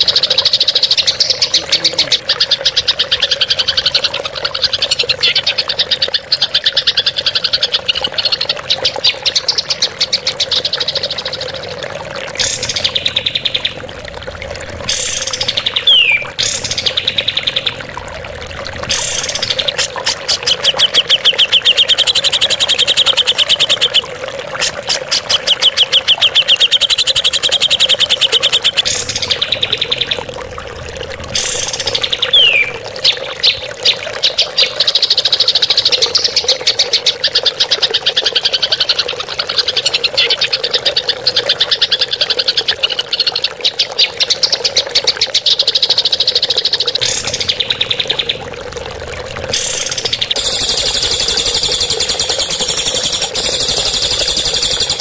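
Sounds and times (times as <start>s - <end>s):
steady low drone: 12.2s - 20.1s, 28.7s - 32.9s, 47.0s - 55.0s
songbird rattling trills: 12.4s - 14.0s, 14.6s - 32.8s, 47.0s - 55.0s.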